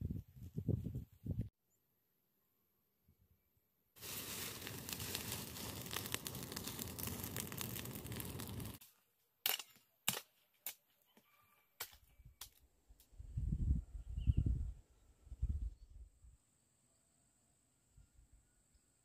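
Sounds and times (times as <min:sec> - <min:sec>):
dry plant material rustling: 0:04.0 - 0:08.8.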